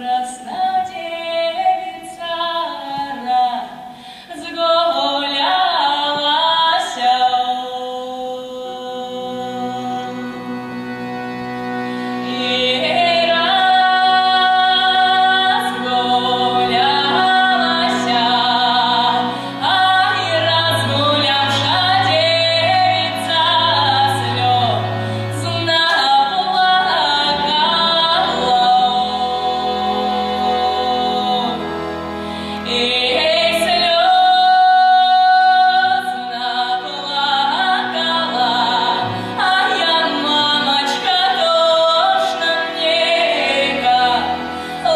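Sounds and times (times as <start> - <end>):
woman singing with vibrato: 0.0 - 11.0, 12.2 - 44.9
accordion: 0.0 - 44.9
double bass: 9.4 - 34.0.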